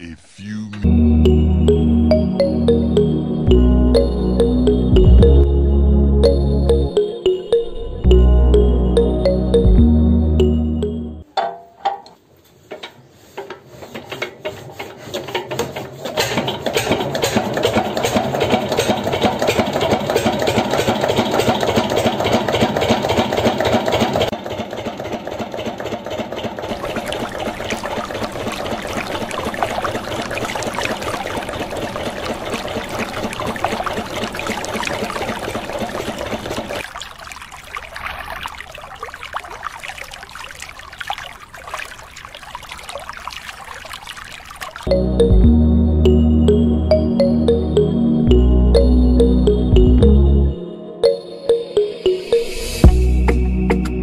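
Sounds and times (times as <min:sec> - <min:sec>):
model engine clattering: 0:13.9 - 0:27.7
water hissing and trickling: 0:26.7 - 0:44.9.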